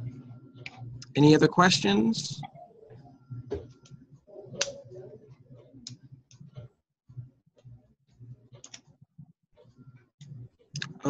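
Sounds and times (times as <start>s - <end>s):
faint murmur of voice: 2.4s - 5.8s.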